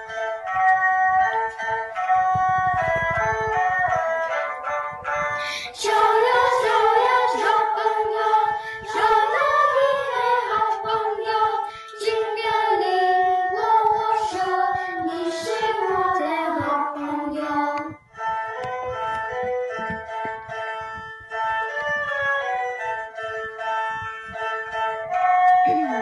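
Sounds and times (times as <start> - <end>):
children's choir singing: 5.4 - 18.0.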